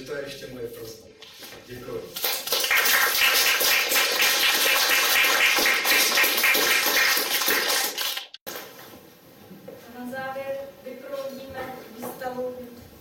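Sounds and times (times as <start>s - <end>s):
audience applauding: 2.2s - 8.4s.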